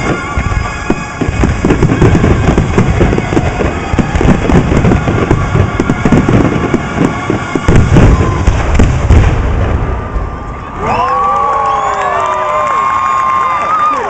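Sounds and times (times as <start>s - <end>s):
fireworks bursting: 0.0s - 10.9s
fireworks crackling: 0.0s - 14.0s.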